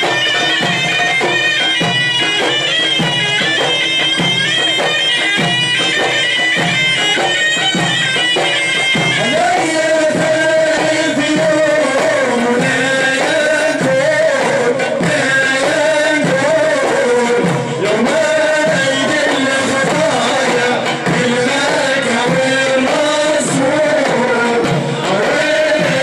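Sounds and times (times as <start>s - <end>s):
reedy wind instrument melody: 0.0s - 12.0s
frame drums beating: 0.0s - 26.0s.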